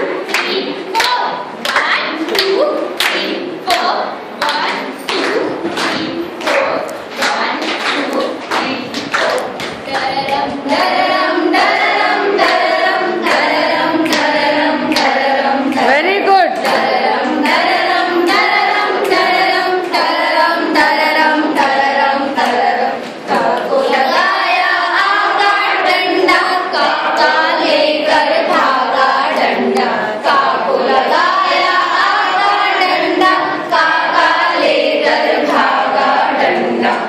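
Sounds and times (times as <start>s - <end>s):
women singing in unison: 0.0s - 37.0s
hands clapping: 0.2s - 10.9s, 11.6s - 17.7s.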